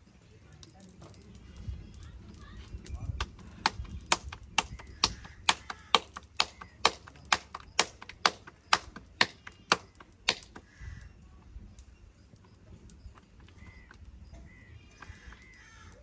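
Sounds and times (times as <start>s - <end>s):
dough slapped between palms: 3.2s - 10.8s.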